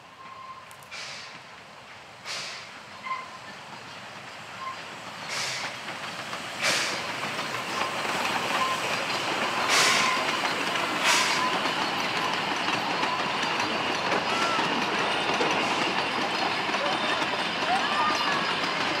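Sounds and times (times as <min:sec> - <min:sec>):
steam exhaust hissing bursts: 0:05.1 - 0:14.2
carriage wheels clattering on rails: 0:05.6 - 0:19.0.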